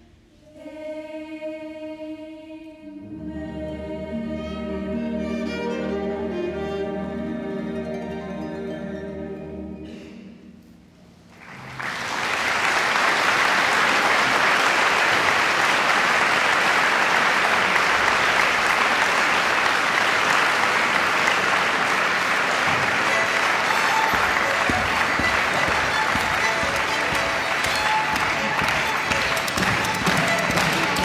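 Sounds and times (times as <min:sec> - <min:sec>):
audience applause: 0:11.3 - 0:31.0.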